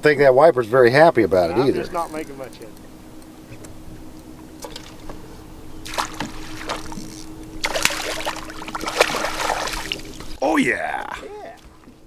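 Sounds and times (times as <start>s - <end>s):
steady low hum: 0.0s - 12.0s
fish splashing at surface: 5.9s - 7.0s, 7.6s - 10.4s.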